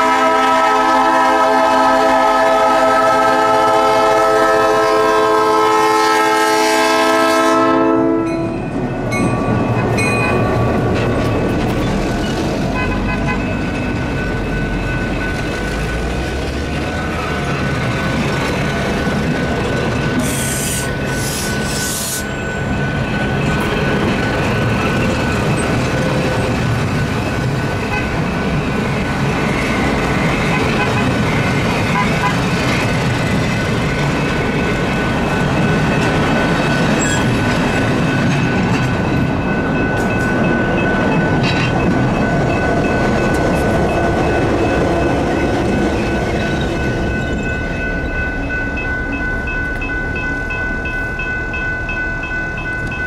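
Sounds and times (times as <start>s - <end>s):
locomotive air horn chord: 0.0s - 8.5s
train rumble and rail noise: 0.0s - 53.0s.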